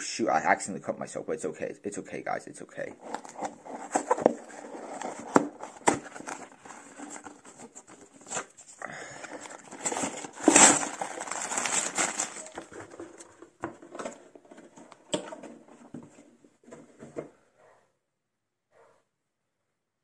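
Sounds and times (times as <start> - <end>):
plastic bags crinkling and rattling: 3.0 - 16.2.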